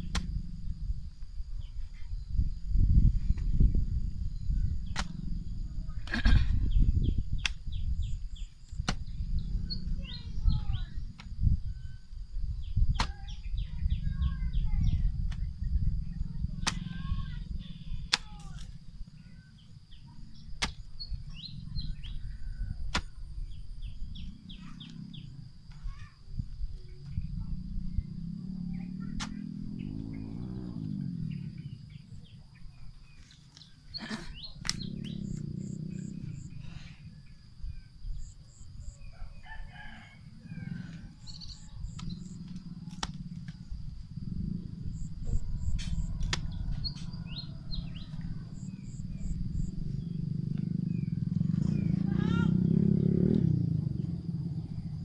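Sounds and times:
small birds chirping: 0:00.0 - 0:55.0
digging tool chopping into soil: 0:04.9 - 0:05.2, 0:08.8 - 0:09.1, 0:12.9 - 0:13.2, 0:20.6 - 0:20.9, 0:22.8 - 0:23.2, 0:29.1 - 0:29.4.

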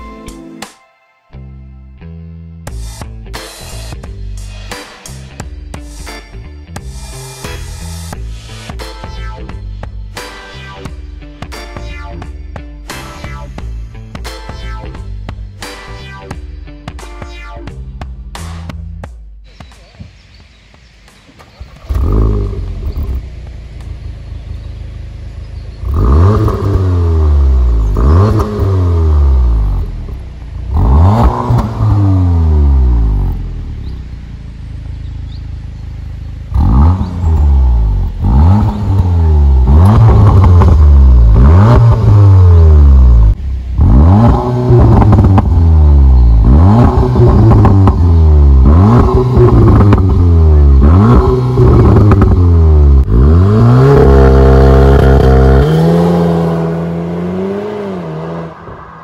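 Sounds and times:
car engine starting and revving: 0:21.2 - 0:59.0.

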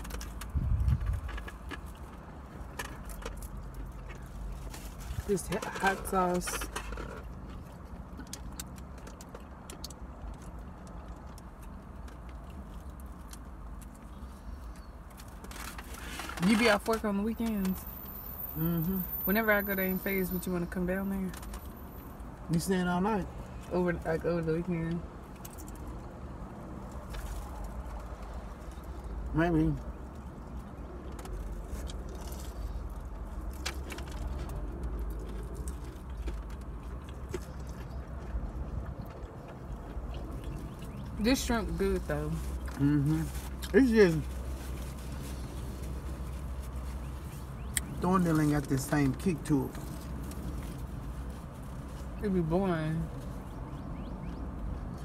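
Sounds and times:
food being chewed: 0:00.0 - 0:16.4, 0:25.2 - 0:41.2
car interior hum: 0:00.0 - 0:55.0.

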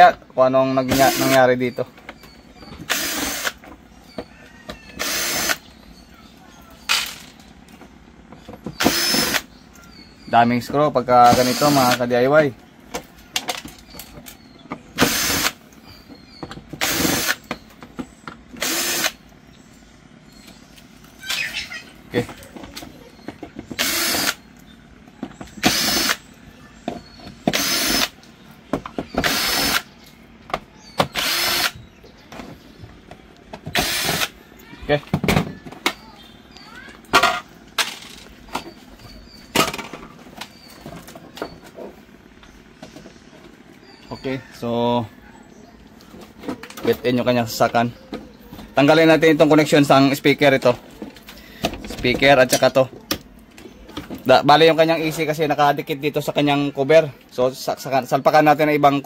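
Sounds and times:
electric drill driving screws: 0:00.9 - 0:01.4, 0:02.8 - 0:03.6, 0:05.0 - 0:05.6, 0:08.8 - 0:09.5, 0:11.2 - 0:12.0, 0:15.0 - 0:15.6, 0:16.8 - 0:17.4, 0:18.6 - 0:19.2, 0:23.8 - 0:24.4, 0:25.6 - 0:26.2, 0:27.5 - 0:28.2, 0:29.2 - 0:29.9, 0:31.0 - 0:31.8, 0:33.7 - 0:34.4.

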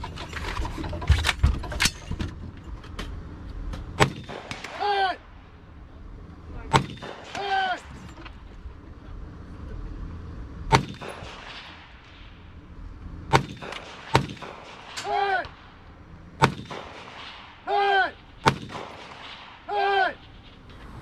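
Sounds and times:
rifle shots: 0:04.0 - 0:05.0, 0:06.7 - 0:07.9, 0:10.7 - 0:12.6, 0:13.3 - 0:15.8, 0:16.4 - 0:20.6.

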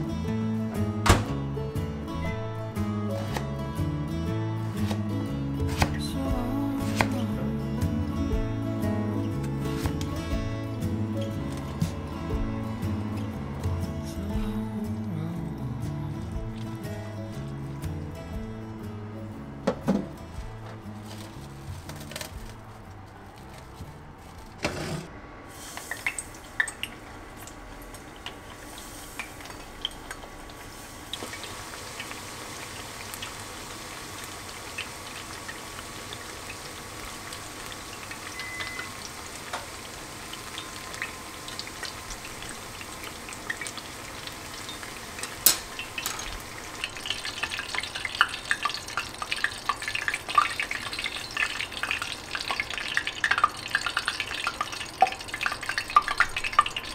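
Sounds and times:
food sizzling in hot oil: 0:25.5 - 0:56.9.

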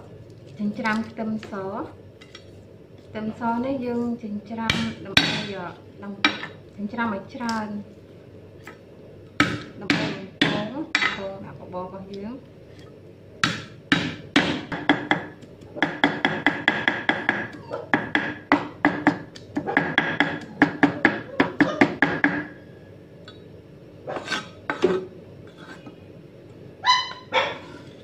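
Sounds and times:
cleaver chopping on wooden board: 0:13.4 - 0:22.5.

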